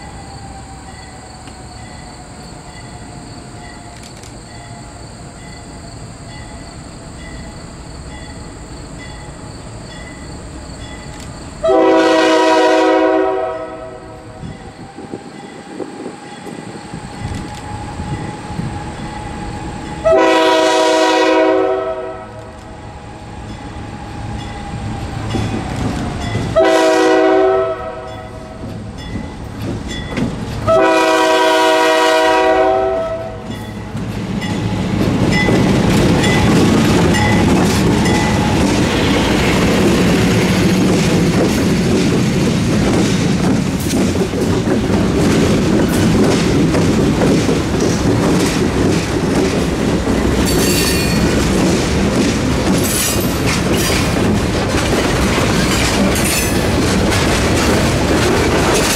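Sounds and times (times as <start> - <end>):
train engines and wheels rumbling: 0.0 - 58.9
locomotive air horn blasts: 11.6 - 14.4, 20.0 - 22.5, 26.6 - 28.3, 30.7 - 33.5.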